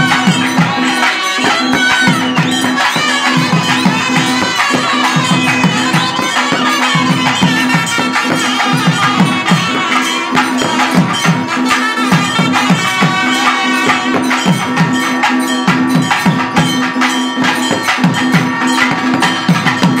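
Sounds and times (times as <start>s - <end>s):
wind instruments playing melody: 0.0s - 15.4s
stick-beaten drum strokes: 0.0s - 20.0s.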